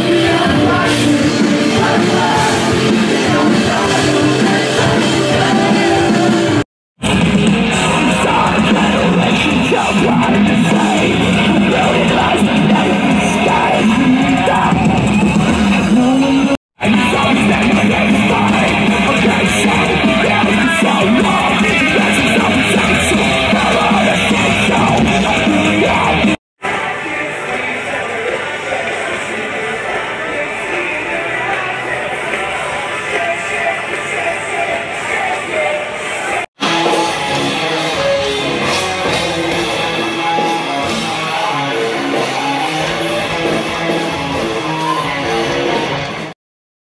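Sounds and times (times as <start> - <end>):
live rock band playing: 0.0 - 26.4, 36.6 - 46.3
electric guitar: 0.0 - 28.1, 36.6 - 46.3.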